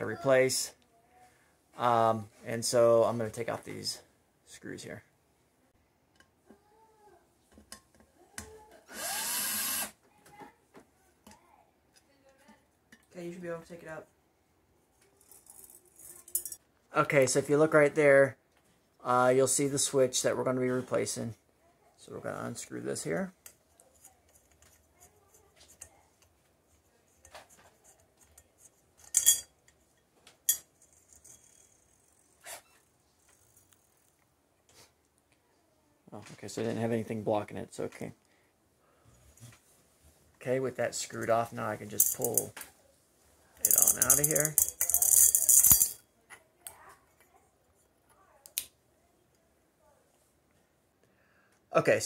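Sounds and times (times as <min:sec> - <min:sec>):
cordless drill whirring: 0:08.9 - 0:10.0
small metal clicks and clinks: 0:15.1 - 0:16.6, 0:28.2 - 0:32.4, 0:43.6 - 0:46.0.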